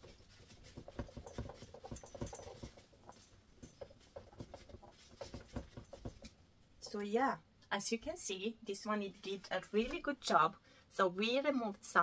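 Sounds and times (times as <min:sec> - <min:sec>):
paper towel scrubbing: 0:00.0 - 0:02.9, 0:03.9 - 0:06.3.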